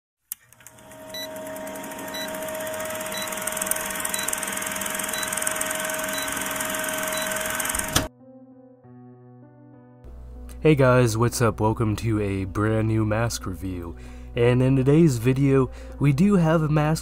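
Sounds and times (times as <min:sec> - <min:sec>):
film projector whirring: 0:00.3 - 0:08.1.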